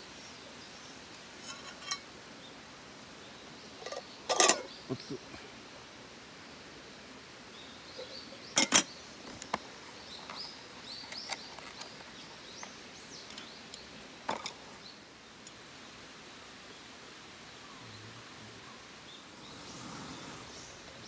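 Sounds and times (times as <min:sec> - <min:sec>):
cookware clicking on metal table: 0:03.8 - 0:04.7, 0:08.6 - 0:08.9
faint bird chirps: 0:07.5 - 0:09.2, 0:17.6 - 0:21.0.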